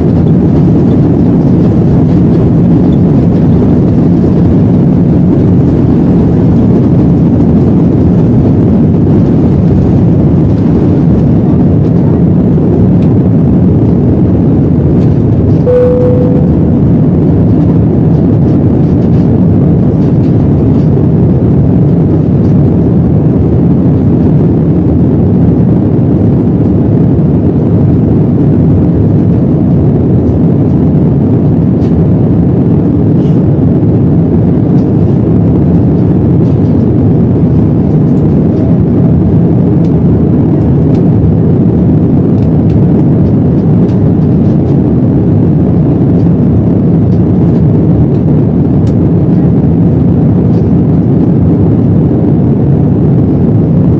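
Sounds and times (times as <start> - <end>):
airliner cabin engine rumble: 0.0 - 53.9.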